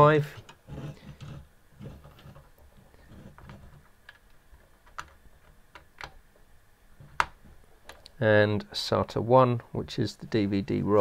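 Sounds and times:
faint rustling of cables: 0:00.0 - 0:08.2.

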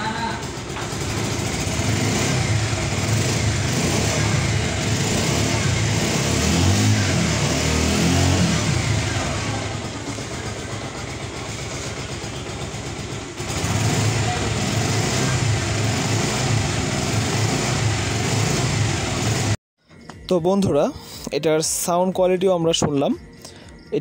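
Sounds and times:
motorcycle engine revving and running: 0:00.0 - 0:19.6.

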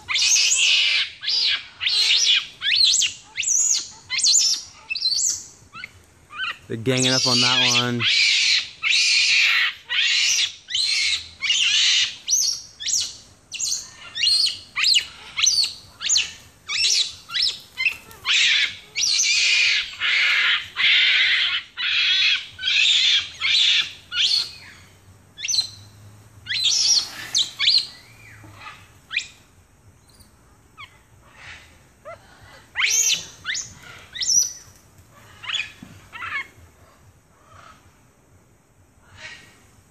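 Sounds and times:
monkeys squealing and chirping: 0:00.1 - 0:24.7, 0:26.5 - 0:28.0, 0:32.7 - 0:34.5, 0:35.3 - 0:36.5.

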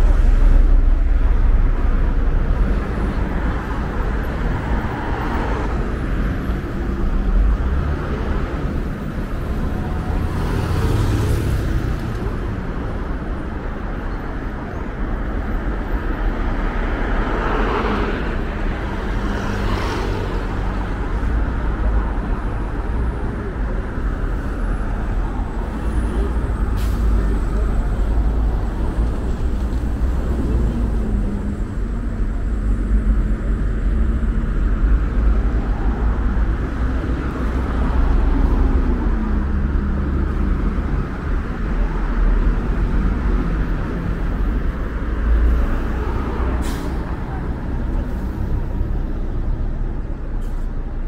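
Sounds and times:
road traffic rumble: 0:00.0 - 0:51.0
vehicles passing: 0:00.0 - 0:51.0.

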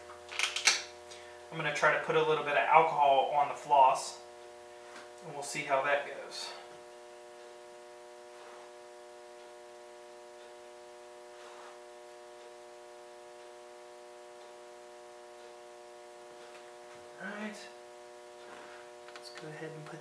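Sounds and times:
electrical hum with hiss: 0:00.0 - 0:20.0
faint soft rustle: 0:08.3 - 0:08.8, 0:11.3 - 0:11.9.

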